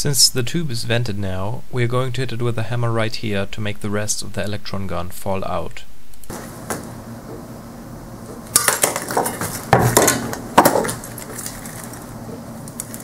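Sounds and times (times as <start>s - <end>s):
glassy cracking and clinking: 8.3s - 13.0s
hammer breaking glass: 8.5s - 11.2s.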